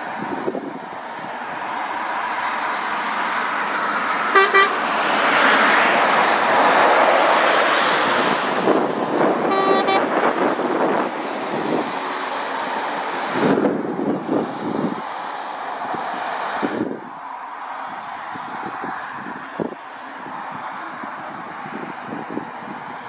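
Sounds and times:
horn toots: 4.3 - 4.9, 9.4 - 10.2.

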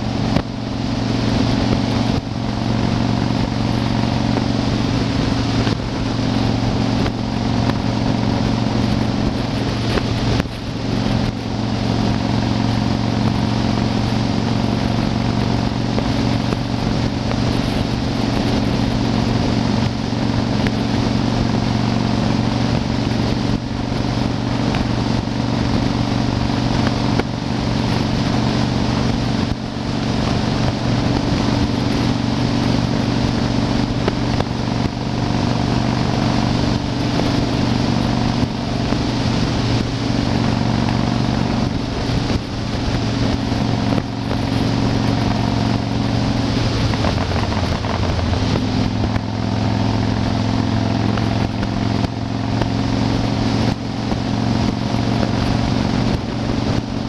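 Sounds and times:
motorcycle engine cruising: 0.0 - 57.0
wind rushing: 0.0 - 57.0.

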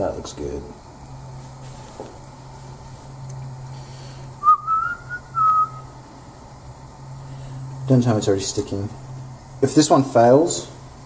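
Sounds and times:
person whistling: 4.4 - 5.9.

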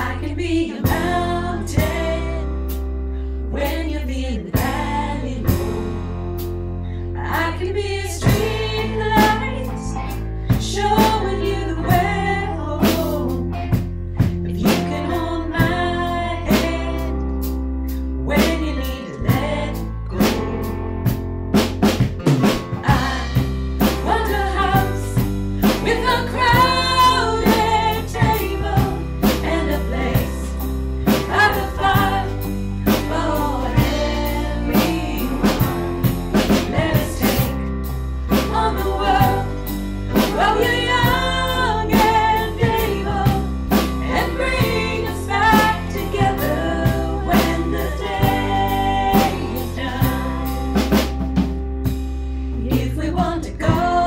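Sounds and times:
drum kit beat: 0.0 - 2.9, 4.6 - 6.6, 7.4 - 17.2, 17.9 - 54.0
bass line: 0.0 - 54.0
person singing: 18.3 - 20.7, 38.3 - 50.9.

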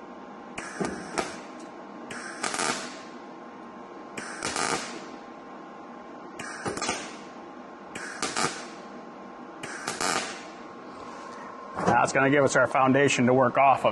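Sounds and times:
welder faint hum: 0.0 - 13.9
welding arc bursts: 0.6 - 3.2, 4.2 - 5.2, 6.4 - 8.9, 9.6 - 10.7.

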